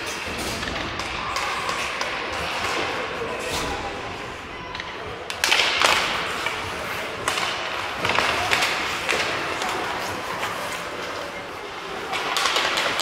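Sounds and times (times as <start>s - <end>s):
hockey sticks clacking: 0.0s - 3.8s, 4.7s - 13.0s
stick hitting puck: 4.7s - 10.5s, 12.0s - 13.0s
skates scraping ice: 5.2s - 13.0s.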